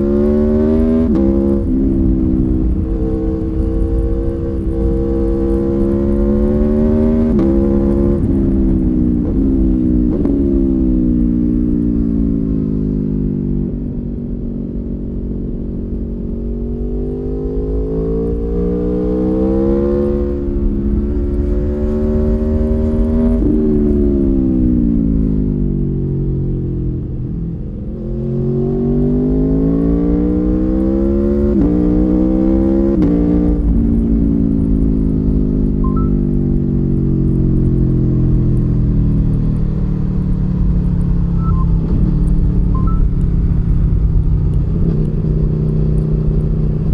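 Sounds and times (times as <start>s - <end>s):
motorcycle engine revving: 0.0s - 26.8s, 27.8s - 46.9s.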